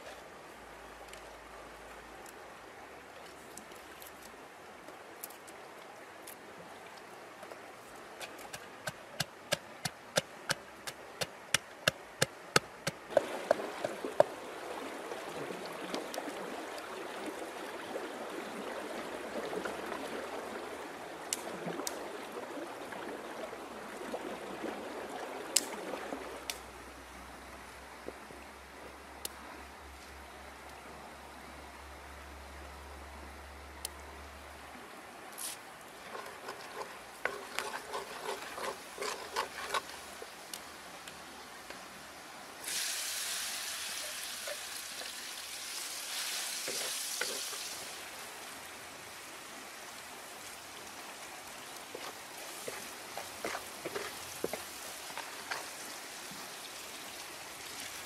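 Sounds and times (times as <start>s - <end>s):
stream water splashing: 0.0s - 28.3s, 34.6s - 58.0s.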